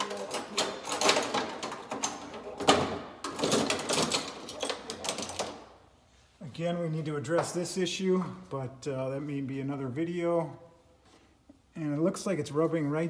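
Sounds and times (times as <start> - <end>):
parts and tools clattering: 0.0 - 5.8.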